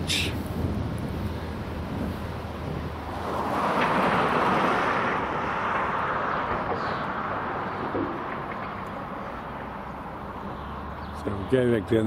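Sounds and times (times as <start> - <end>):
car driving past: 3.0 - 11.2.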